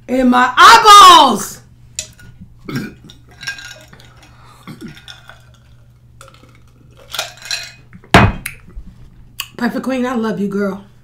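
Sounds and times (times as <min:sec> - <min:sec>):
ice clinking in a glass: 0:03.1 - 0:07.8.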